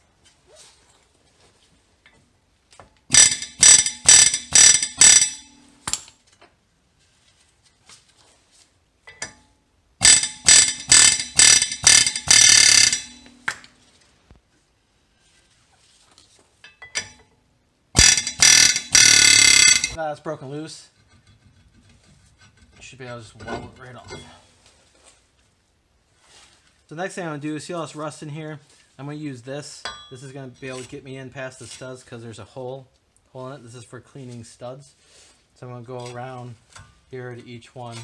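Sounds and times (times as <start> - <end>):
air hammer rattling on metal: 3.1 - 6.0, 10.0 - 13.6, 18.0 - 20.0.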